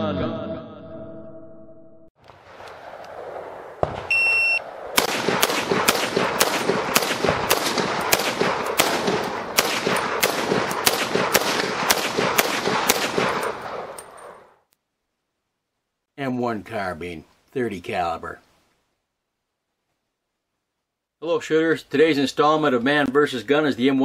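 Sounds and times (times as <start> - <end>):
rifle firing rapid shots: 2.4 - 14.4.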